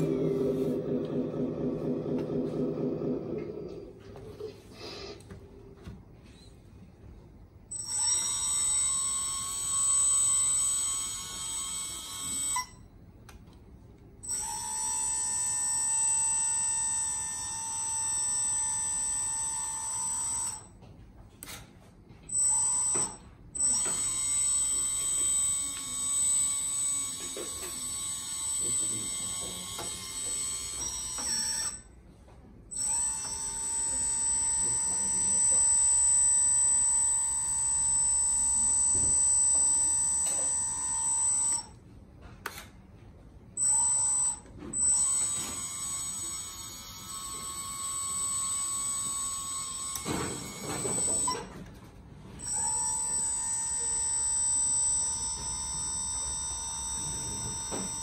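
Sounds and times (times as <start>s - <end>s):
hydraulic pump whining: 0.0s - 5.2s, 22.3s - 31.9s, 32.7s - 41.8s, 43.6s - 51.7s, 52.3s - 58.0s.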